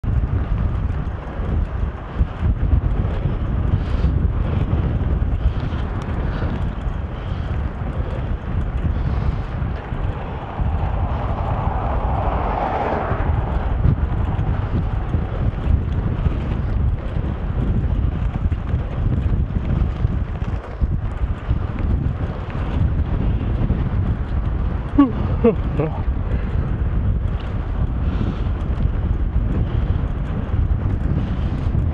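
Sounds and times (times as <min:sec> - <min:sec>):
engine and road rumble: 0:00.0 - 0:31.9
wind buffeting microphone: 0:00.0 - 0:31.9
car passing: 0:05.4 - 0:19.5.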